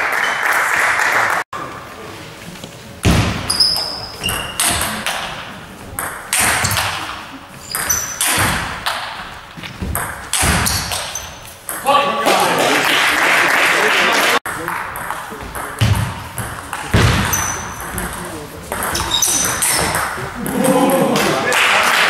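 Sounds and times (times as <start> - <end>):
applause: 0.0 - 1.5, 12.3 - 14.4, 21.2 - 22.0
short high squeaks: 3.5 - 4.7, 7.6 - 8.3, 17.2 - 17.8, 18.9 - 20.0.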